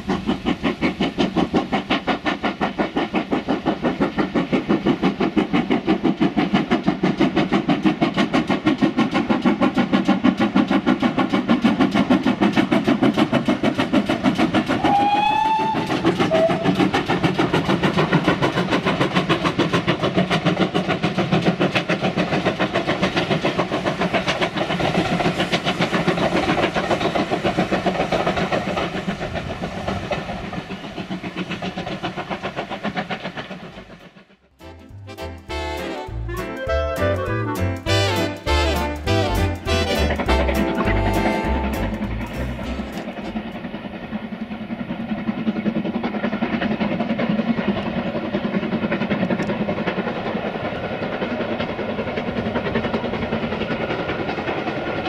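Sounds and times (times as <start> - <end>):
steam locomotive exhaust beats: 0.0 - 55.0
train whistle blasts: 14.8 - 16.7, 34.6 - 43.4.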